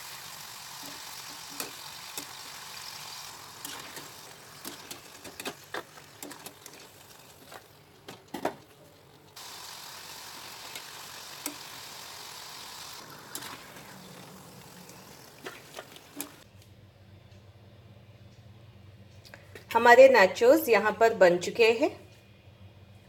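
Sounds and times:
chips sizzling in hot oil: 0:00.0 - 0:07.8, 0:09.4 - 0:16.4.

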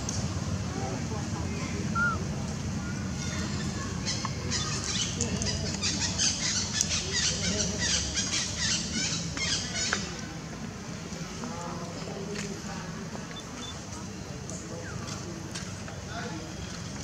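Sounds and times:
high-pitched chirping calls: 0:13.3 - 0:13.8.

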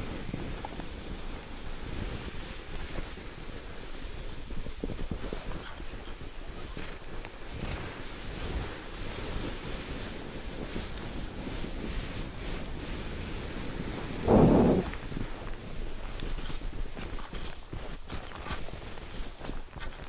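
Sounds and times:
wind buffeting microphone: 0:07.5 - 0:17.0
loud low rumble: 0:14.2 - 0:15.0.

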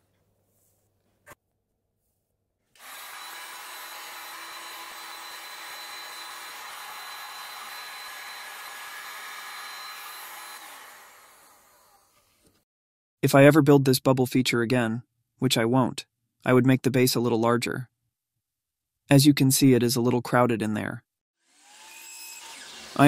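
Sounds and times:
heat gun fan blowing: 0:02.8 - 0:12.0.

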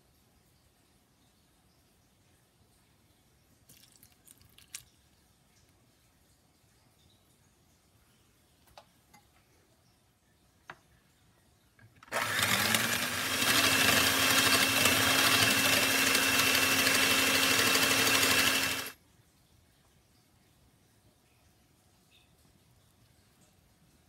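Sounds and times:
electric mixer whining: 0:12.0 - 0:19.0.

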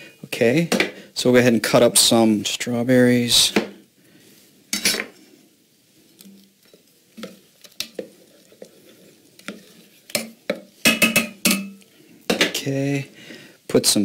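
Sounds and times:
spoon stirring thick oatmeal: 0:06.2 - 0:11.8
spoon clinking against pot: 0:10.2 - 0:11.8
sharp knocks against pot: 0:10.2 - 0:12.6.

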